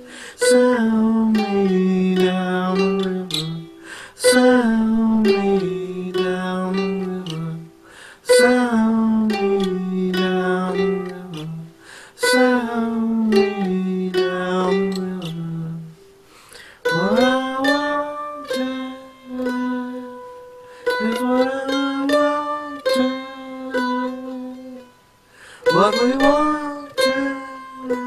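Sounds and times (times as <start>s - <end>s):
man singing held notes: 0.0s - 28.0s
mandolin picking: 0.0s - 28.0s.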